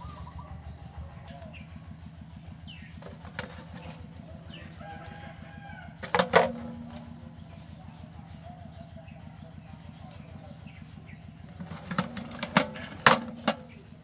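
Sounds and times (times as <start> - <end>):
chickens clucking: 0.0 - 14.0
eggs knocking on metal basin: 3.0 - 4.0, 6.0 - 7.2, 11.6 - 13.8
rooster crowing: 4.2 - 7.0.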